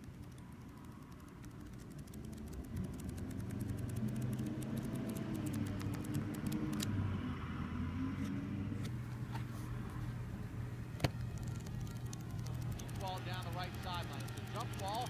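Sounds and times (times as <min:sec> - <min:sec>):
flipbook pages riffling: 0:01.2 - 0:06.8.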